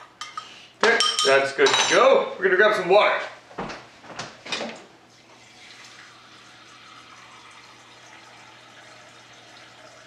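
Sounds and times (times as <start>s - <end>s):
tap water pouring into container: 5.2s - 10.0s.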